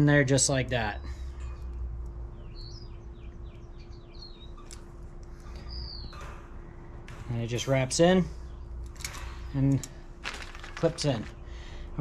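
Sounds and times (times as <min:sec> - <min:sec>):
faint steady hum: 0:00.0 - 0:12.0
small birds chirping: 0:00.0 - 0:12.0.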